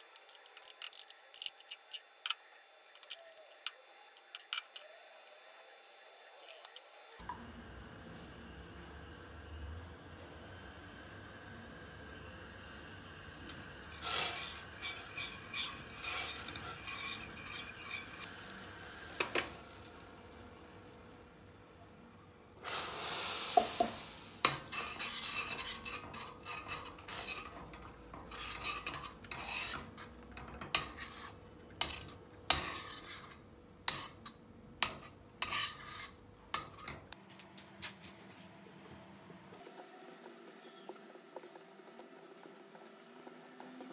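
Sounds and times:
loud hiss of starch in hot syrup: 0:09.3 - 0:19.0, 0:22.6 - 0:25.2
spoon scraping in steel pot: 0:13.6 - 0:18.3, 0:24.4 - 0:37.1.

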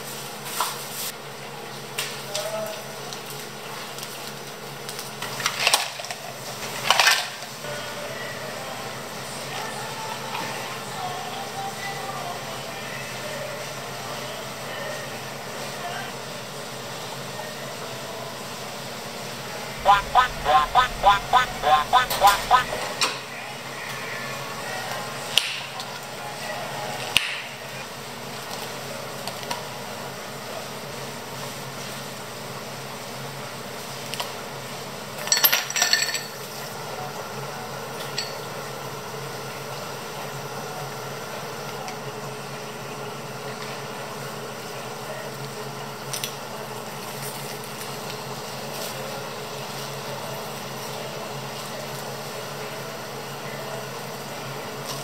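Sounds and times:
background hum: 0:19.8 - 0:22.9.

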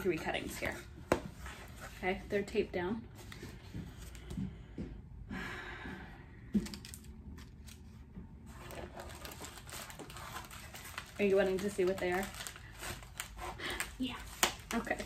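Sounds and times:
paper rustle: 0:08.5 - 0:15.0.

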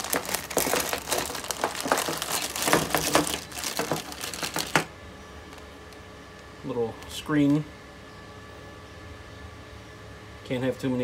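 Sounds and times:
plastic bag crinkling: 0:00.0 - 0:04.9.

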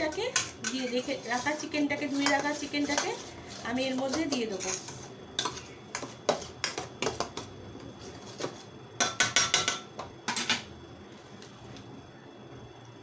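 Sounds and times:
metal spatula clanking on pot: 0:09.0 - 0:10.6.

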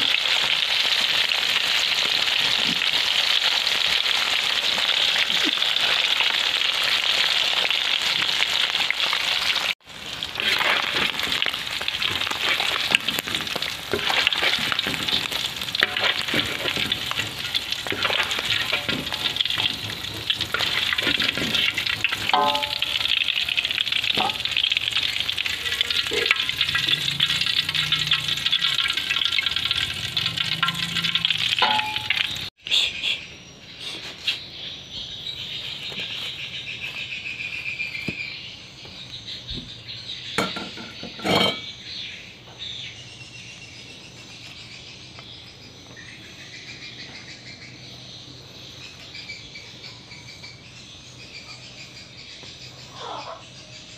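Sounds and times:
fish sizzling in hot oil: 0:00.0 - 0:32.5.

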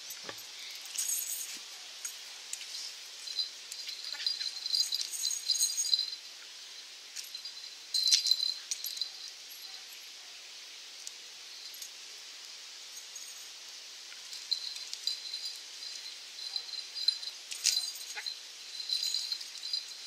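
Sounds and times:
dog collar jingling: 0:00.0 - 0:06.2, 0:07.2 - 0:10.0, 0:14.3 - 0:20.0.

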